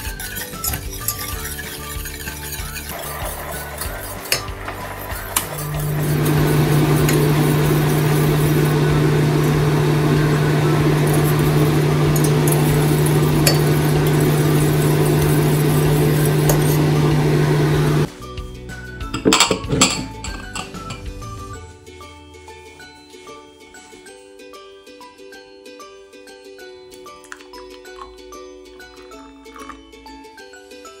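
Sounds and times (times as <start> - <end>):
whisk clinking against metal pot: 0.0 - 5.9, 11.1 - 16.9.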